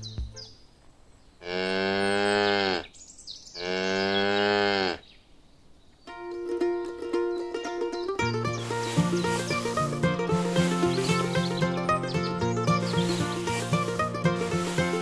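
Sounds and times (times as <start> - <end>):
cow mooing: 1.4 - 2.9, 3.6 - 5.0
light instrumental music: 6.1 - 15.0.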